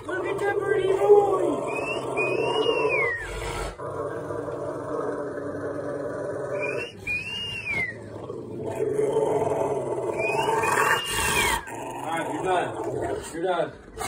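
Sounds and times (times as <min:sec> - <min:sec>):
dog growling: 0:00.0 - 0:14.0
dog whining: 0:01.0 - 0:03.8, 0:06.5 - 0:08.2, 0:10.0 - 0:11.8.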